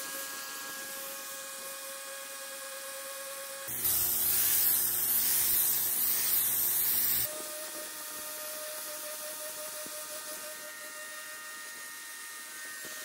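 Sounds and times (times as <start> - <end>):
motor and pump humming: 0.0 - 13.0
pressure washer jet hissing: 3.7 - 7.3.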